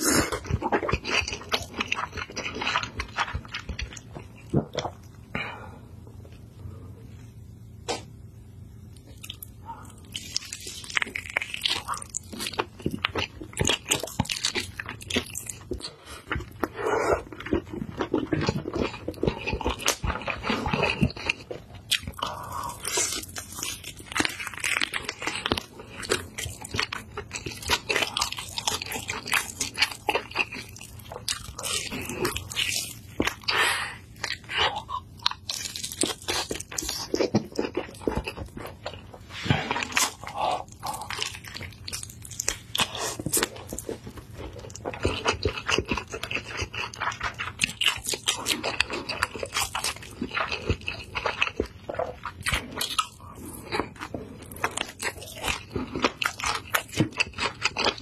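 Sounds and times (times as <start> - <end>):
crunchy chewing: 0.0 - 5.2, 8.9 - 58.0.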